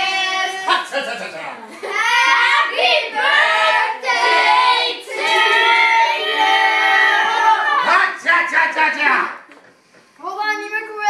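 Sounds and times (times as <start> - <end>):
children singing together: 0.0 - 0.8, 1.9 - 7.8.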